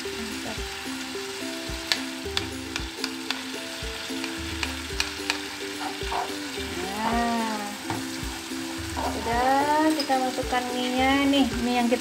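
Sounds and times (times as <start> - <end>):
food sizzling in a frying pan: 0.0 - 12.0
soft background music: 0.0 - 12.0
spatula clicking against pan: 1.8 - 6.0.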